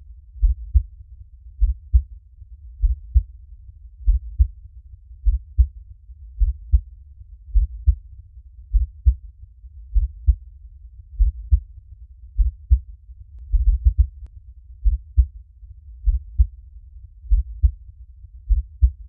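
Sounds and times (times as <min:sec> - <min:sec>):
faint low rumble: 0:00.0 - 0:19.0
human heartbeat thumps: 0:00.4 - 0:00.9, 0:02.8 - 0:03.3, 0:04.0 - 0:04.5, 0:06.4 - 0:06.9, 0:07.6 - 0:08.0, 0:08.7 - 0:09.2, 0:10.0 - 0:10.4, 0:11.2 - 0:11.6, 0:12.4 - 0:12.8, 0:13.5 - 0:14.2, 0:16.0 - 0:16.5, 0:17.3 - 0:17.8, 0:18.5 - 0:19.0.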